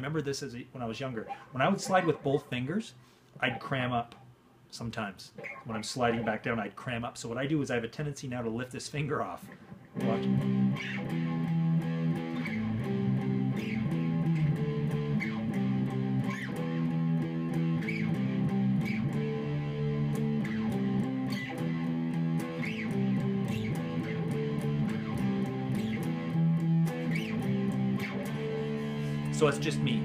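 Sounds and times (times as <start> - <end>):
electric guitar riff: 1.1 - 2.8, 9.4 - 30.0.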